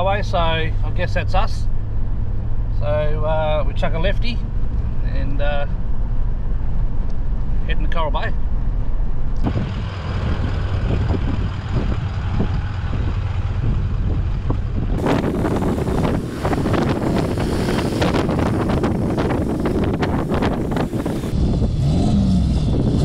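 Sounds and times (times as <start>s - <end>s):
engine and road rumble: 0.0s - 23.0s
wind buffeting microphone: 8.4s - 23.0s.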